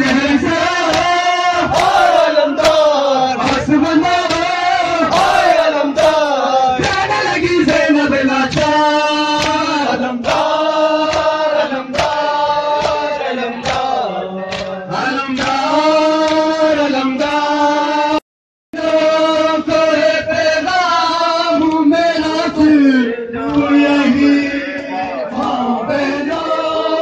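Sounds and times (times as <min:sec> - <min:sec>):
men chanting a lament: 0:00.0 - 0:18.2, 0:18.8 - 0:27.0
chest-beating slaps: 0:03.4 - 0:05.4, 0:08.5 - 0:12.2, 0:12.8 - 0:13.9.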